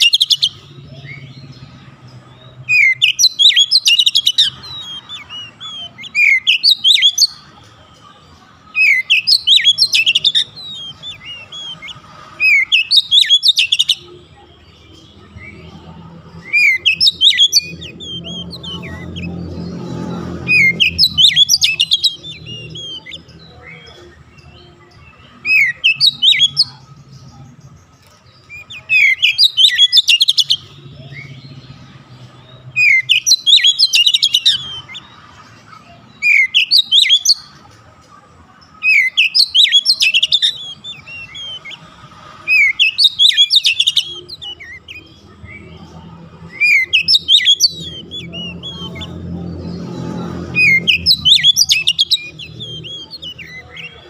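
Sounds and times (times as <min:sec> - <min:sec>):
bird singing whistles: 0:02.6 - 0:07.4, 0:08.8 - 0:14.0, 0:16.4 - 0:19.3, 0:28.5 - 0:31.4, 0:32.7 - 0:35.0, 0:36.2 - 0:37.5, 0:38.9 - 0:41.8, 0:42.5 - 0:45.7, 0:46.5 - 0:49.1, 0:50.5 - 0:54.0.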